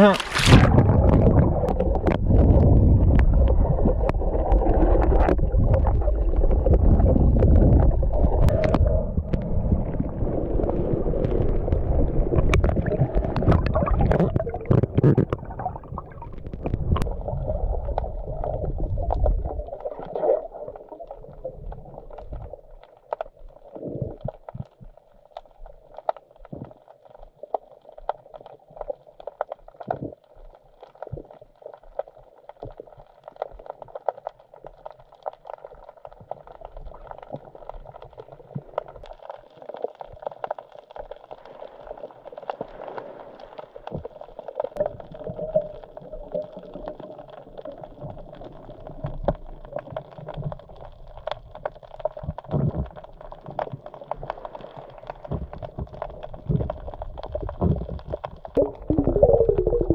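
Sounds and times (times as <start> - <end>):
water sloshing and gurgling: 0.0 - 59.9.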